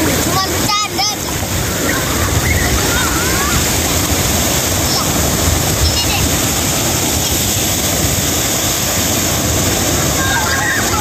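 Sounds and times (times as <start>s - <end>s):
small waves washing up beach: 0.0s - 11.0s.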